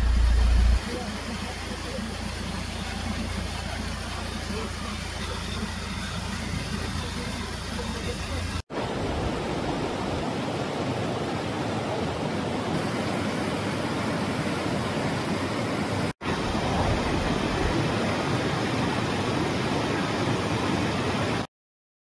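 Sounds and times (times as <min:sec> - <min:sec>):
river rushing over rocks: 0:08.4 - 0:21.5.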